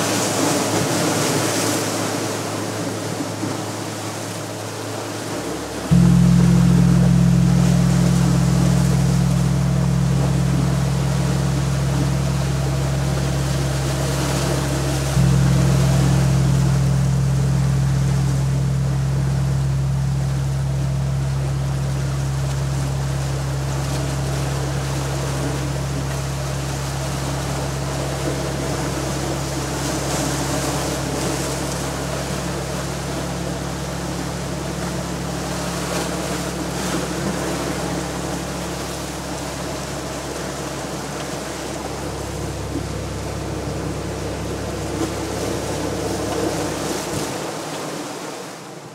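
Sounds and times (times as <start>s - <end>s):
deep gong tone: 0.0s - 48.0s.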